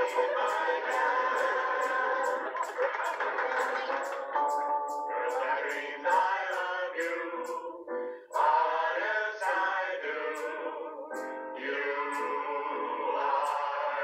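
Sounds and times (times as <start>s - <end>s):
light ticking beat: 0.0s - 7.6s
voices singing together: 0.0s - 14.0s.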